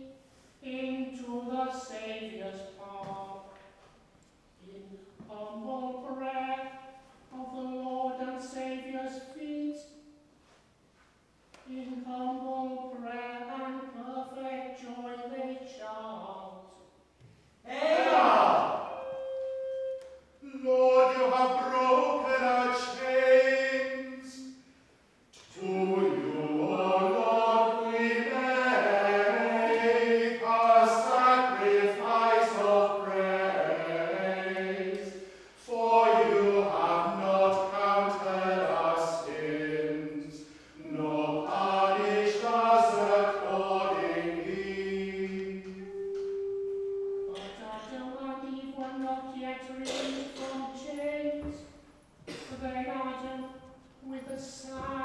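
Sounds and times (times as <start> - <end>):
voices singing a slow chant: 17.6 - 24.7, 25.4 - 47.6.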